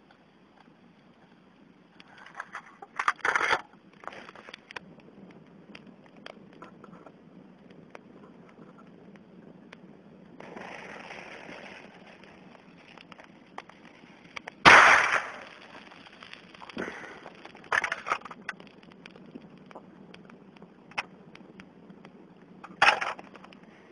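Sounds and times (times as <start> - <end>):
torn can crackling: 0.0 - 23.9
igniting flame hiss: 3.8 - 23.9
explosive bang: 14.6 - 15.6.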